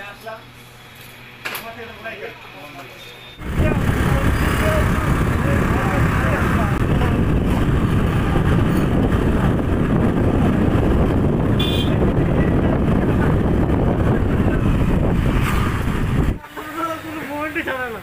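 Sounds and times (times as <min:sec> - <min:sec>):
traffic rumble and road noise: 0:00.0 - 0:18.0
short high horn toot: 0:11.6 - 0:12.0.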